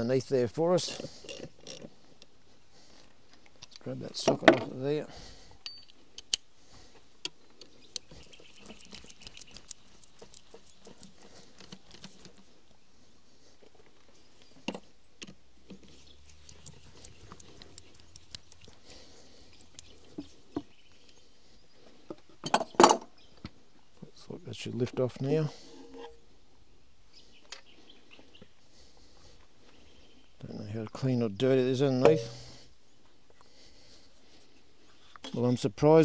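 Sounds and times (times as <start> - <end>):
metal tool clicks and taps: 5.6 - 6.5.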